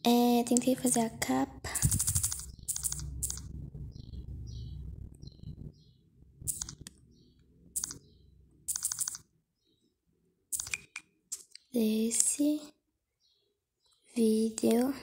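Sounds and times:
low hum: 0.8 - 8.6
fingers tapping on touchscreen: 1.7 - 3.5, 6.5 - 7.0, 7.8 - 8.0, 8.7 - 9.3, 10.5 - 12.4.

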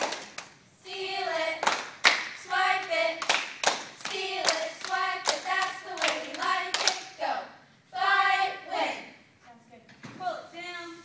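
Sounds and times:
rhythmic hand claps: 0.0 - 7.2
girls chanting a cheer: 0.8 - 9.3.

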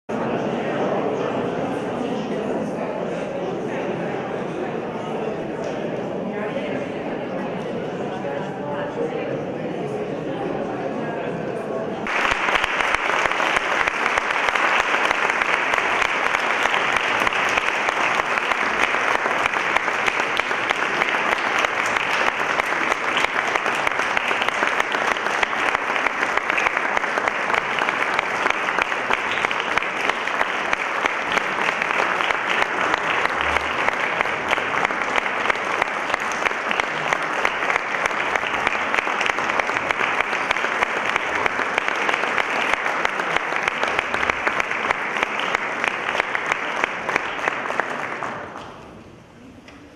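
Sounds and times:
audience applauding: 12.0 - 48.8.

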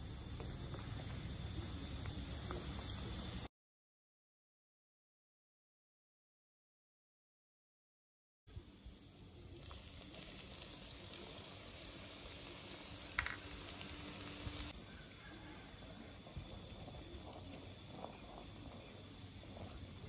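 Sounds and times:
shallots sizzling in fat: 0.0 - 3.5, 8.5 - 20.0.

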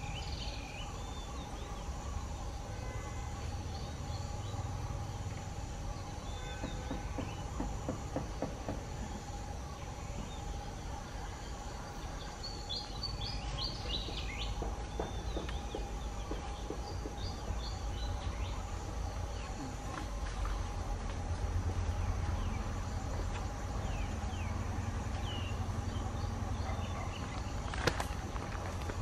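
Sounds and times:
insect drone: 0.0 - 29.0.

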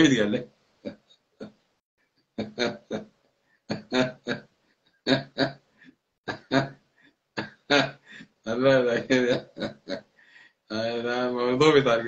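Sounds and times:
man laughing: 2.4 - 6.8, 7.4 - 8.2, 8.8 - 10.1.

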